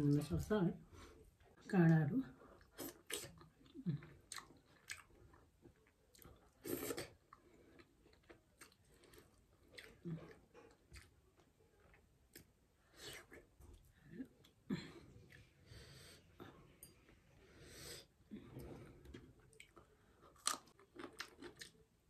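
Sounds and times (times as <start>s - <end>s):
wet chewing: 2.6s - 12.5s, 19.1s - 21.9s.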